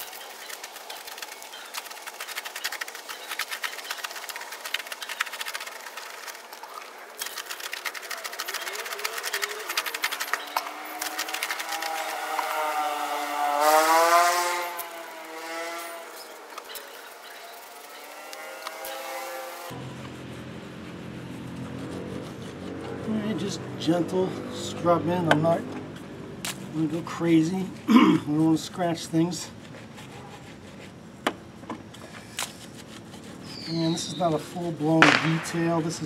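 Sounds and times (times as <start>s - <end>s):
brush scrubbing wheel: 0.0s - 24.1s, 26.8s - 31.2s, 32.0s - 35.0s
vehicle engine passing: 0.0s - 27.5s.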